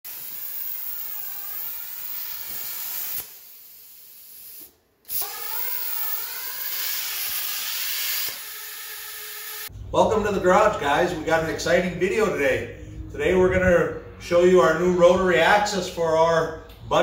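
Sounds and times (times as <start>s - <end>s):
plasma cutter torch hissing: 0.1s - 9.7s.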